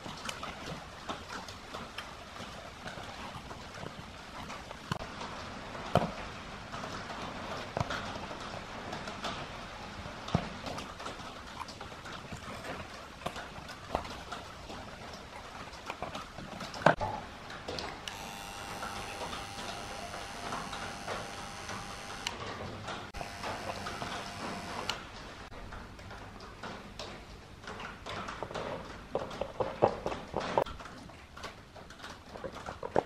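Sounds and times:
soldering gun electrical buzz: 18.1 - 22.4, 23.2 - 25.1.

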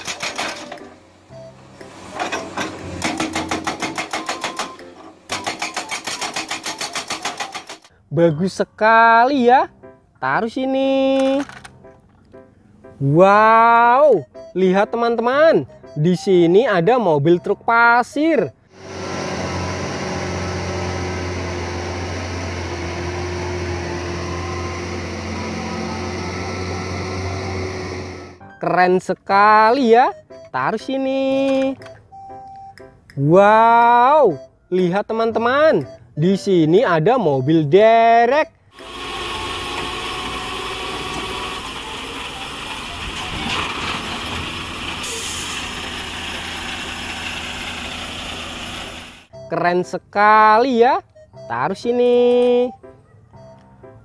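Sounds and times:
diesel truck engine droning: 0.0 - 5.4, 17.2 - 28.7, 34.0 - 49.6.

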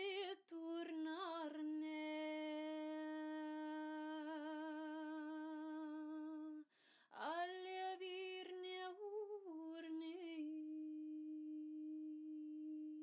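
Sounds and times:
woman singing a long humming note: 8.5 - 13.0.

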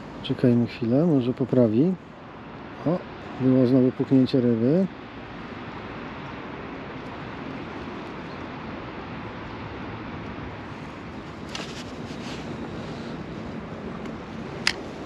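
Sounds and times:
outdoor hiss and rumble: 0.0 - 15.0.

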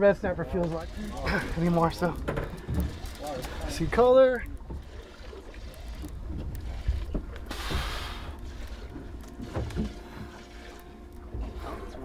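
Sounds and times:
boat engine low rumble: 0.0 - 12.0
hissing water wash: 0.0 - 12.0
faint hum: 5.6 - 12.0.

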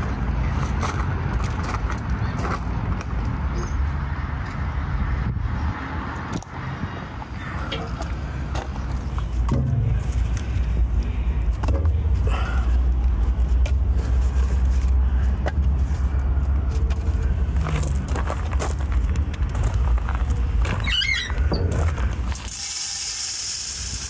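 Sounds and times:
steady low rumble: 4.3 - 22.4
logs knocking against metal firebox: 9.4 - 10.2.

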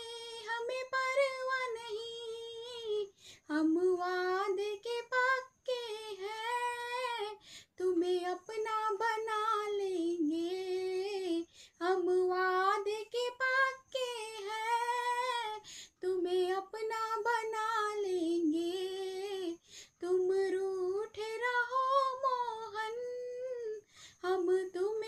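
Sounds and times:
woman singing unaccompanied: 0.0 - 25.0
singer breathing: 3.1 - 3.5, 7.4 - 7.8, 15.6 - 16.0, 19.6 - 20.0, 23.8 - 24.2.

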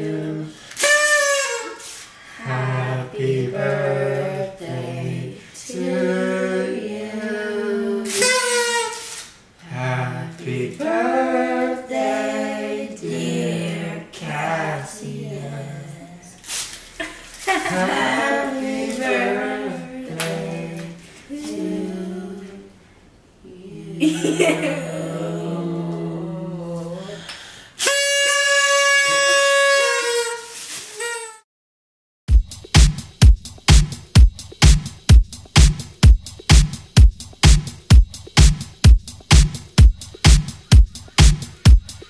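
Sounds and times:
voices singing together: 0.0 - 0.6, 2.3 - 8.4, 9.6 - 16.4, 17.6 - 22.8, 23.4 - 27.2
kazoos humming a tune: 0.6 - 2.1, 8.0 - 9.3, 27.8 - 31.4.

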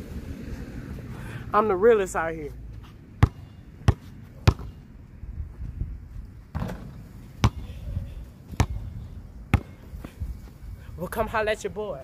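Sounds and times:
basketball bouncing: 3.2 - 4.8, 6.5 - 7.7, 8.6 - 8.8, 9.5 - 9.8.

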